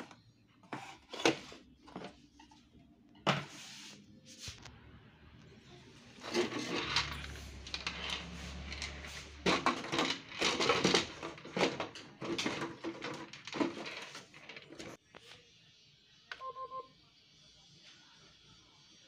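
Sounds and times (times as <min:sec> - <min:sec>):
plastic printer parts clicking and rattling: 0:06.2 - 0:15.0.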